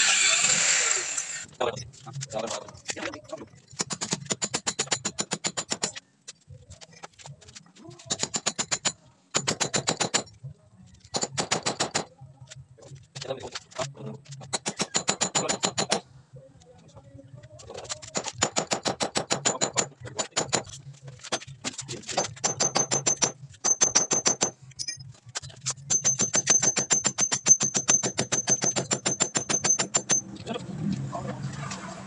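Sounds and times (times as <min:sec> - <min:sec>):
hammer drill boring into wall: 0:00.0 - 0:01.5.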